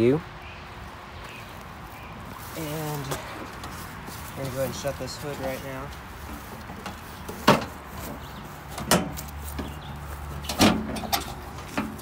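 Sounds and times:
tractor hood knocking shut: 0:08.8 - 0:09.2, 0:10.5 - 0:12.0.

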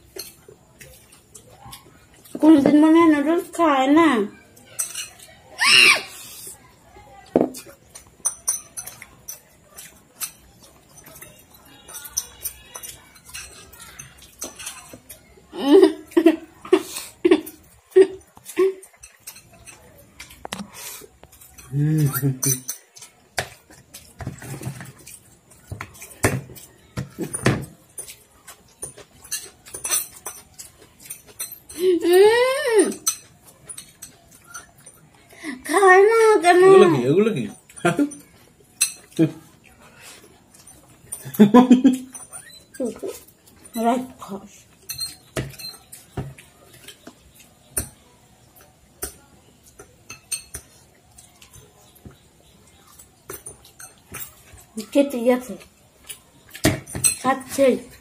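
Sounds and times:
slurping and chewing: 0:00.0 - 0:02.4, 0:04.6 - 0:06.8, 0:07.5 - 0:31.9, 0:37.6 - 0:41.4
forks clinking against bowls: 0:00.0 - 0:02.7, 0:04.5 - 0:05.4, 0:07.5 - 0:20.5, 0:21.2 - 0:58.0
forks scraping ceramic bowls: 0:04.6 - 0:05.4, 0:07.8 - 0:15.3, 0:23.8 - 0:31.8, 0:42.1 - 0:47.9, 0:49.7 - 0:50.9, 0:52.8 - 0:55.0.

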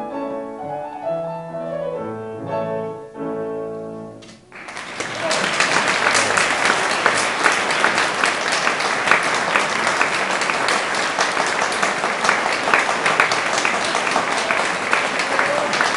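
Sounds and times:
audience applauding: 0:04.5 - 0:15.9.

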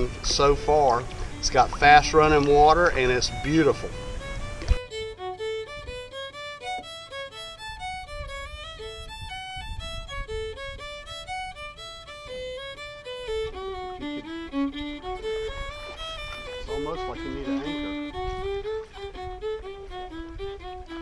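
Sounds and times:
lively background music: 0:00.0 - 0:08.1, 0:12.7 - 0:20.7.

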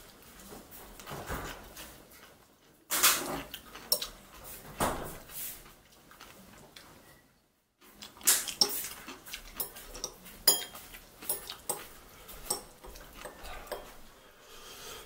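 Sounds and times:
metal chopsticks clicking on bowl: 0:12.5 - 0:13.9.

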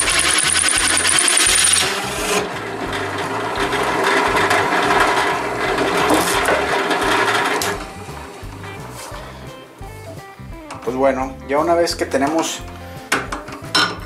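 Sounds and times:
hole saw cutting wood: 0:00.0 - 0:08.9
drill press humming: 0:00.0 - 0:09.4.

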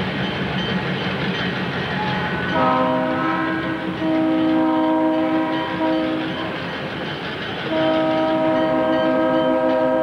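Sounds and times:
locomotive air horn: 0:02.0 - 0:06.7, 0:07.7 - 0:10.0.

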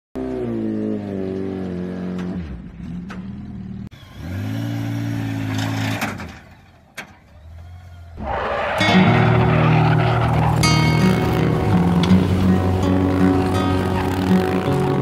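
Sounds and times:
motorcycle engines revving: 0:00.2 - 0:15.0.

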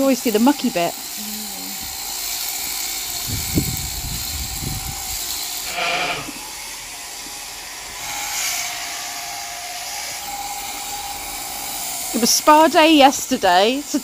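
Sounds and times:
electric sheep shears buzzing: 0:00.0 - 0:14.0
sheep bleating: 0:05.7 - 0:06.4.

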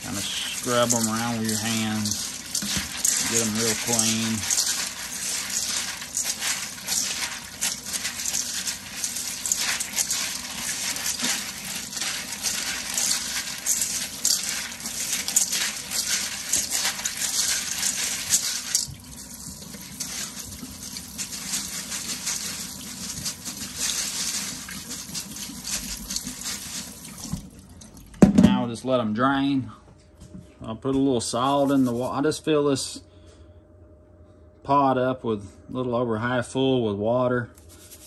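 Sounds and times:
beans rattling in metal colander: 0:00.0 - 0:27.4
tap water running: 0:00.0 - 0:28.3.

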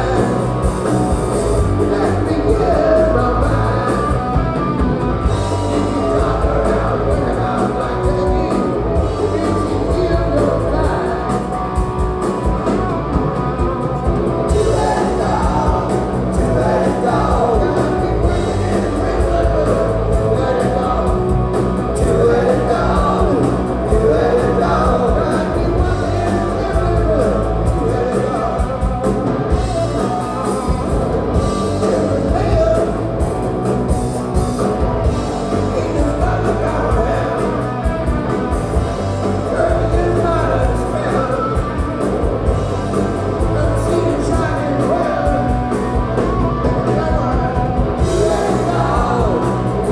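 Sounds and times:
man singing into a microphone: 0:00.0 - 0:00.6, 0:01.6 - 0:04.6, 0:05.5 - 0:11.6, 0:14.5 - 0:29.0, 0:31.4 - 0:33.1, 0:35.5 - 0:37.9, 0:39.4 - 0:41.8, 0:43.3 - 0:49.9
drums: 0:00.0 - 0:49.9
electric guitar: 0:00.0 - 0:49.9.

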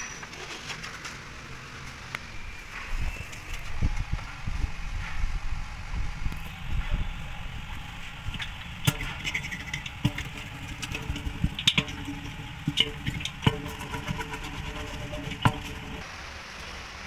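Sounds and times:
steady low rumble: 0:02.4 - 0:16.1.

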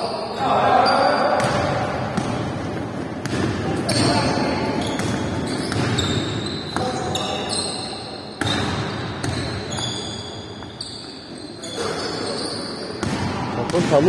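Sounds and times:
sneakers squeaking: 0:00.0 - 0:14.0
basketball bouncing: 0:01.4 - 0:07.2, 0:08.4 - 0:10.0.

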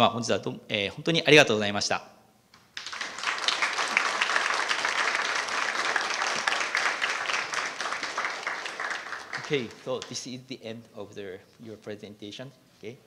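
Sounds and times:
audience clapping: 0:02.7 - 0:10.2.

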